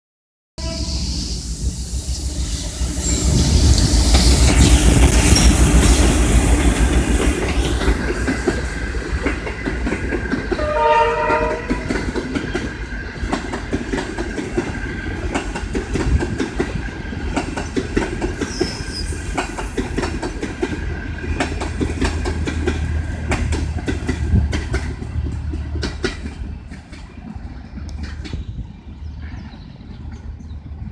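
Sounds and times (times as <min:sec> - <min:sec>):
train horn blast: 0:00.6 - 0:01.2, 0:10.6 - 0:12.0
train wheels clicking over rail joints: 0:02.7 - 0:30.8.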